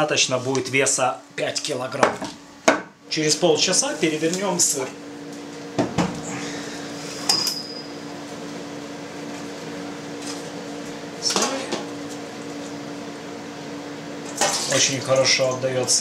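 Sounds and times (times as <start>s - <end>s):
steady low hum: 0.0s - 16.0s
ringing metal clink: 7.3s - 7.9s.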